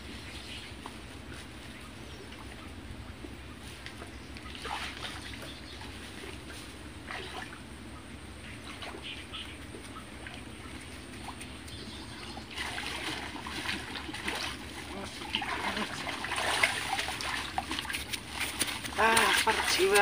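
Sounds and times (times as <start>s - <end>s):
feet splashing through muddy water: 3.8s - 7.6s, 8.6s - 20.0s.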